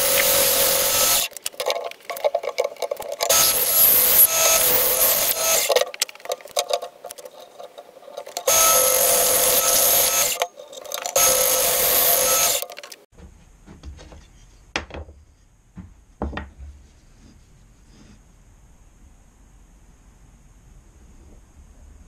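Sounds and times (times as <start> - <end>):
bandsaw cutting wood: 0.0 - 1.4, 3.2 - 5.8, 8.2 - 12.8
wooden piece knocking on workbench: 14.8 - 15.2, 15.8 - 16.8.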